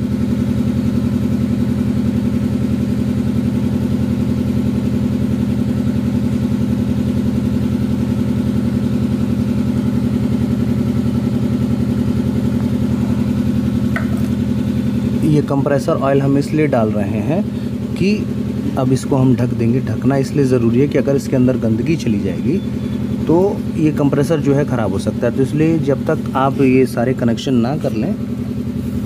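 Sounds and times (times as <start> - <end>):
engine idling: 0.0 - 29.0.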